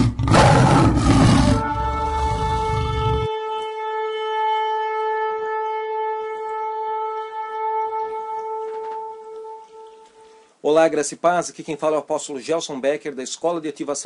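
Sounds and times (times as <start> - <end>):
ram's horn blown in long note: 1.2 - 10.6.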